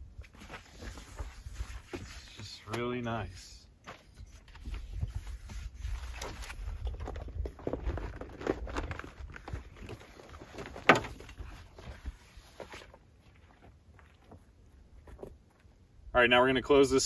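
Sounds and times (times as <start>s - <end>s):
footsteps: 6.0s - 15.8s.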